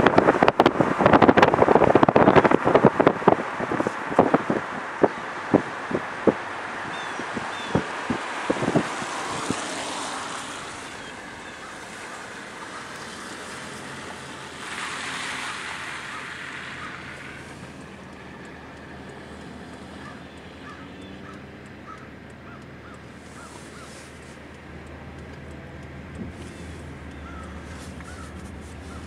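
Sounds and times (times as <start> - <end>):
tyres hissing on wet road: 0.0 - 21.6, 23.0 - 29.0
rush of spray: 7.3 - 18.4, 23.2 - 24.4.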